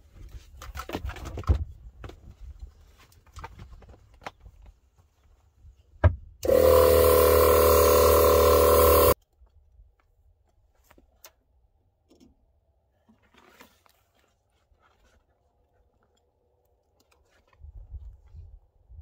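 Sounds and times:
air compressor running: 6.4s - 9.2s.

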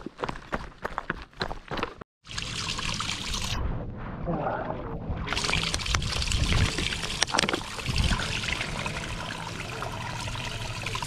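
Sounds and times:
water splashing into stone basin: 5.2s - 11.0s.

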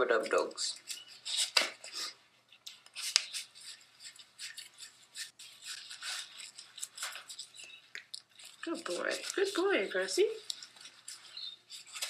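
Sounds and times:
scrubbing wet dog coat: 8.4s - 11.9s.

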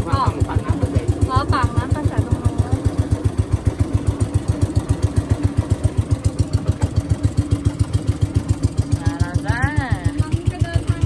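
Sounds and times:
boat engine puttering: 0.0s - 11.0s.

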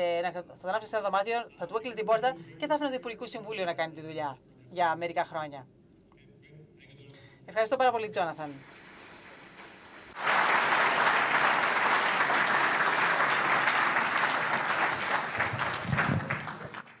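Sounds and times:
audience applauding: 8.6s - 17.0s.

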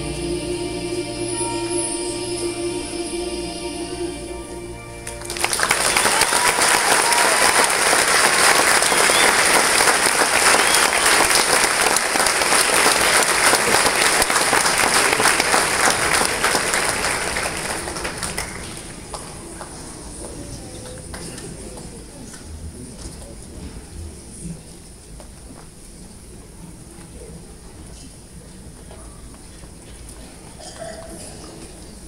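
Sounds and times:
choir chord: 0.0s - 6.1s
audience applauding: 5.0s - 19.8s.

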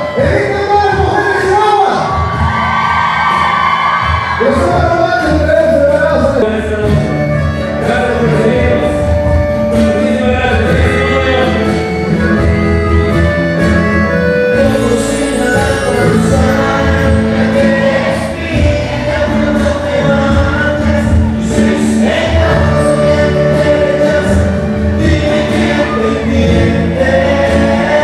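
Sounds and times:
live band music: 0.0s - 28.0s
sousaphone and bass line: 0.0s - 28.0s
man singing: 4.4s - 12.5s, 14.4s - 28.0s.

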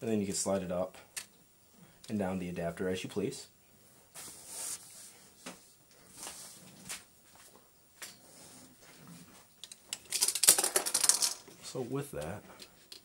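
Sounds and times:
plastic parts rubbing: 9.6s - 11.8s.

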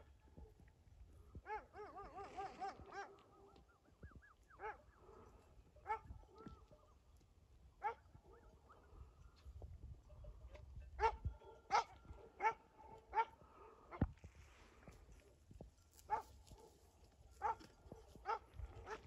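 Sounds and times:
dog barking faintly: 1.3s - 7.0s, 10.0s - 14.1s, 15.1s - 19.0s.

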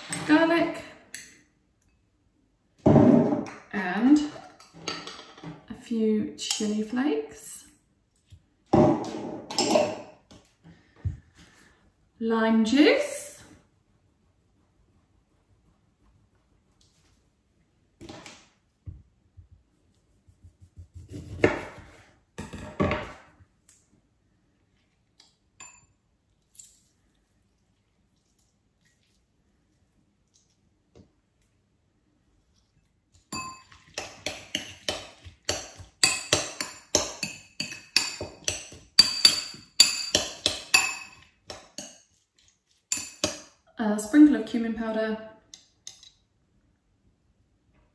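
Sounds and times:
metal spoon clinking ceramic bowl: 25.6s - 25.9s, 33.3s - 42.0s, 42.9s - 43.5s.

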